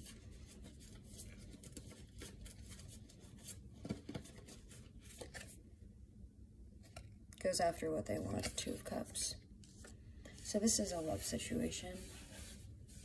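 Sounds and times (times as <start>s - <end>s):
cards rustling and clicking: 0.0s - 5.6s.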